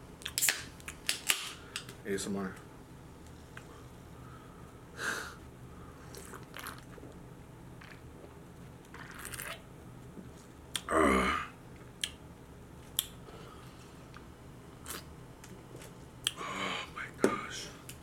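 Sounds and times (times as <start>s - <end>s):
loud throat sound: 10.8s - 11.6s.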